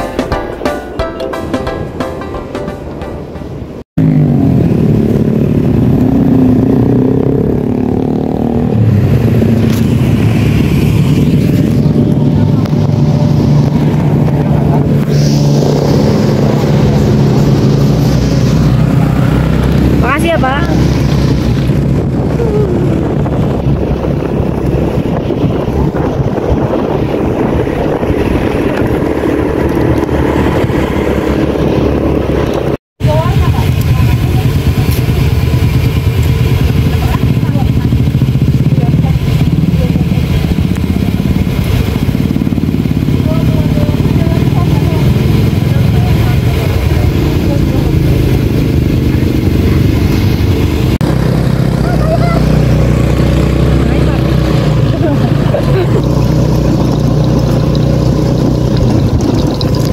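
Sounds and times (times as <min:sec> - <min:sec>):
background music: 0:00.0 - 0:03.8
motorcycle engine and road noise: 0:01.6 - 0:59.9
wind on microphone: 0:03.6 - 0:59.9.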